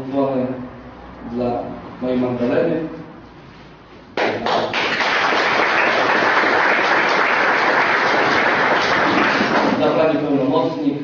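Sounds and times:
audience applauding: 4.2s - 9.8s.

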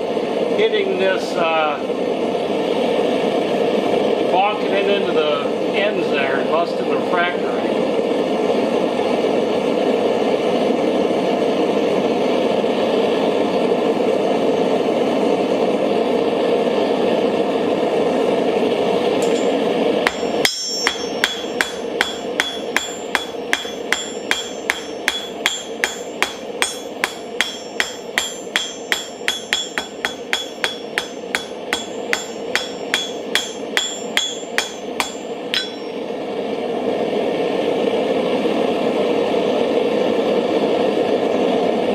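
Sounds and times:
forge burner rushing: 0.0s - 41.9s
hammer ringing on anvil: 19.2s - 36.0s.

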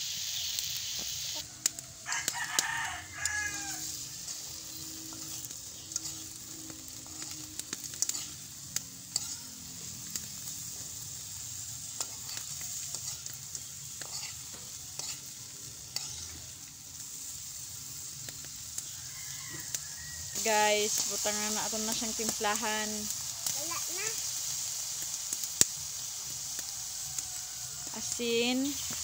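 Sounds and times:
grubs sizzling in a wok: 0.0s - 29.0s
metal spoon scraping a pan: 2.1s - 16.6s.

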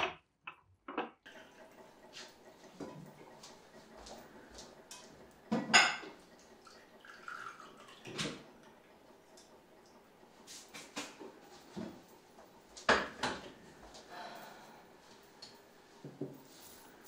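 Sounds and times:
liquid trickling and dripping: 6.4s - 8.4s.

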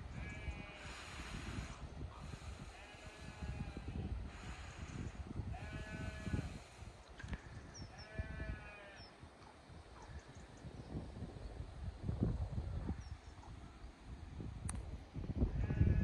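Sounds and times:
sheep bleating: 8.0s - 9.0s.

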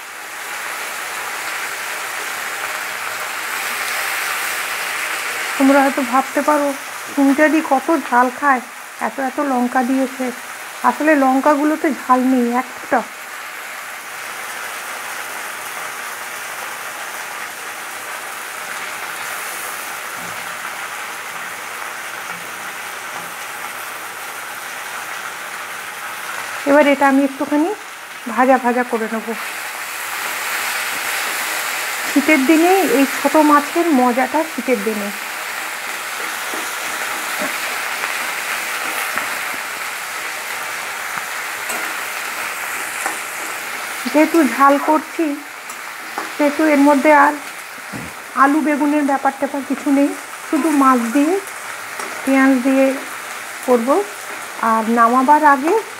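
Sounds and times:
onions sizzling in hot oil: 0.0s - 55.9s
metal spatula scraping pan: 36.1s - 39.6s, 41.5s - 44.6s.

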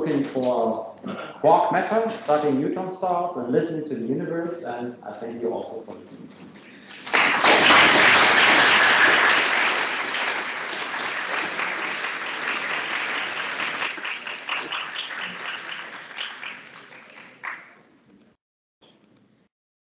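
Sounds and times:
audience applause: 6.9s - 17.8s.

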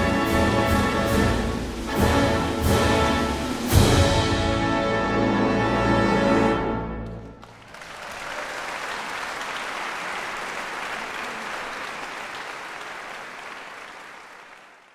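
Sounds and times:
audience applauding: 7.0s - 14.9s.

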